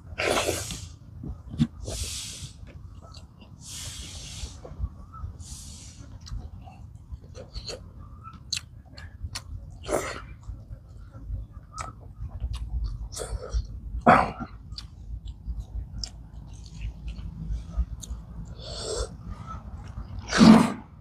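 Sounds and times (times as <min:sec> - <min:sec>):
noisy breaths through the nose: 0:00.2 - 0:02.8, 0:03.5 - 0:06.9
chewing and lip smacks: 0:02.7 - 0:03.6, 0:06.1 - 0:18.6.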